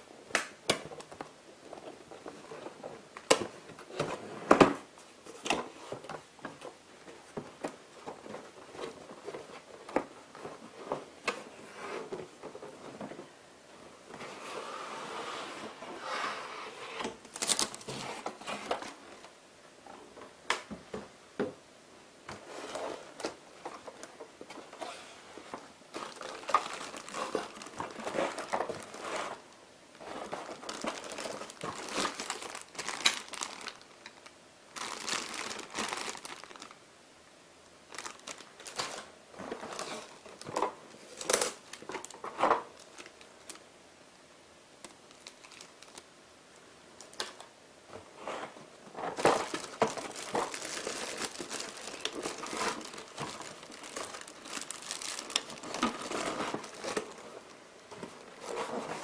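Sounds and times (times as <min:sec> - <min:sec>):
plastic packaging crinkling: 0:17.3 - 0:18.0, 0:25.9 - 0:36.8, 0:37.9 - 0:43.6, 0:44.8 - 0:46.1, 0:49.0 - 0:59.0.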